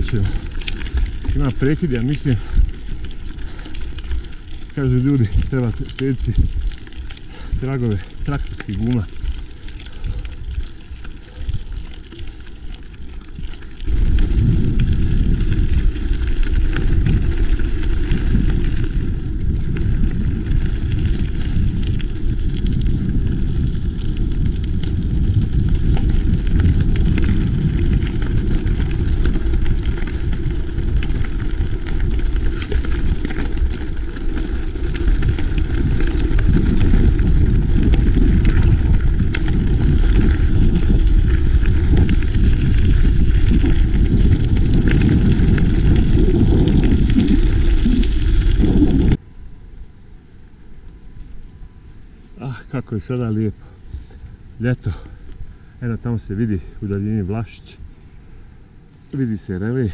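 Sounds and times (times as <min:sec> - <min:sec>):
wind noise on microphone: 0:00.0 - 0:59.6
tyres crackling over gravel: 0:00.0 - 0:59.9.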